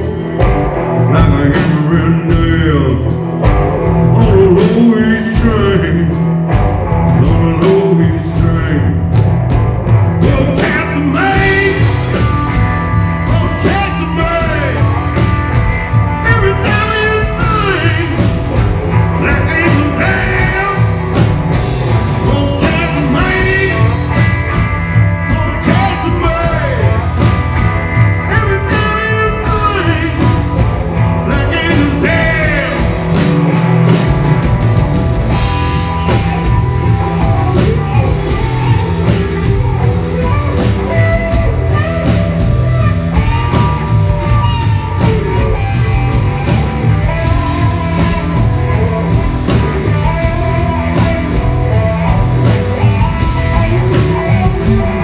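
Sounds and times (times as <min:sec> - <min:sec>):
drum strikes keeping a beat: 0:00.0 - 0:55.0
electric bass: 0:00.0 - 0:55.0
man singing: 0:01.0 - 0:03.2, 0:04.0 - 0:06.4, 0:07.0 - 0:09.2, 0:10.2 - 0:12.4, 0:13.2 - 0:15.4, 0:16.0 - 0:21.2, 0:22.0 - 0:24.4, 0:25.2 - 0:27.3, 0:28.2 - 0:33.2.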